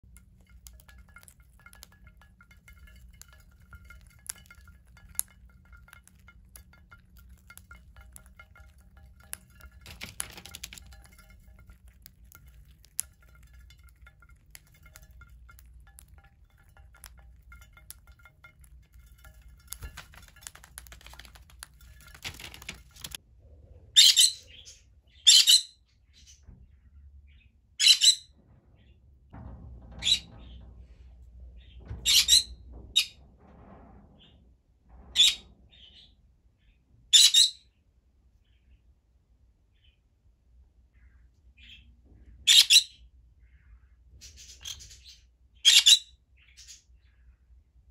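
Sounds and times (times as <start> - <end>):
beaks clicking on glass dish: 0.0 - 23.2.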